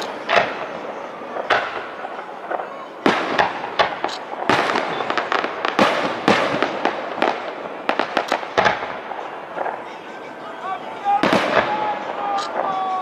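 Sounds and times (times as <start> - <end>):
fireworks shells bursting: 0.0 - 10.2
fireworks crackling: 0.0 - 13.0.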